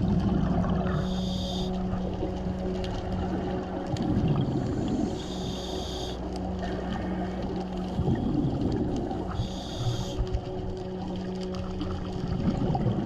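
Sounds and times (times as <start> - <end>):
boat engine drone underwater: 0.0 - 13.0
exhaled bubbles underwater: 0.0 - 13.0
regulator inhale hiss: 0.9 - 1.8, 4.9 - 6.3, 9.4 - 10.3.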